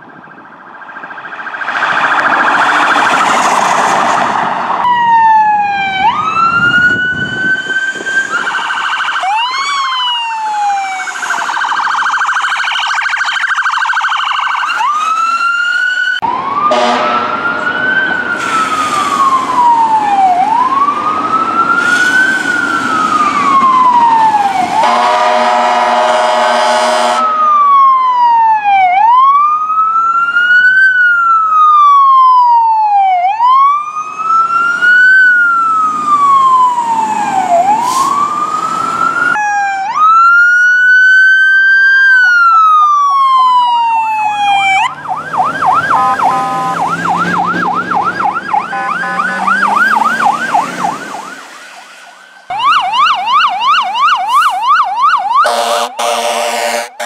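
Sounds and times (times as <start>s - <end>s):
electronic siren wailing: 0.0s - 57.0s
siren yelp: 0.0s - 57.0s
air horn blast: 16.7s - 17.4s, 24.7s - 27.4s, 45.9s - 47.0s, 48.6s - 50.1s, 55.4s - 57.0s.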